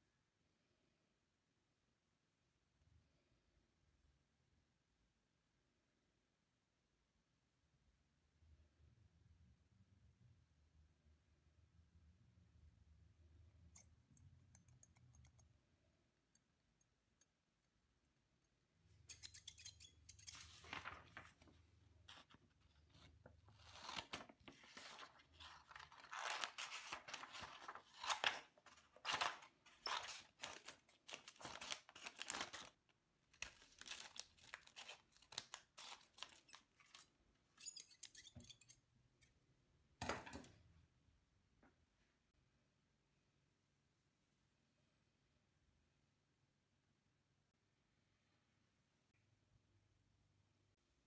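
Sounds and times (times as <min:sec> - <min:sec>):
scissors cutting paper: 0:19.0 - 0:20.8, 0:22.1 - 0:32.7, 0:33.4 - 0:37.0.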